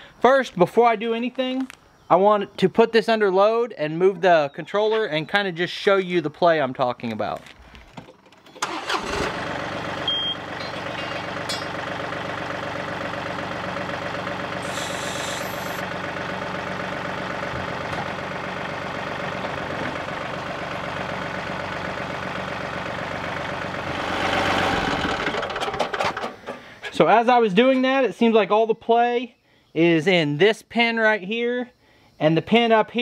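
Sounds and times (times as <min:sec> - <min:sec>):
tractor diesel engine running: 0:07.8 - 0:27.2
short hiss: 0:14.6 - 0:15.8.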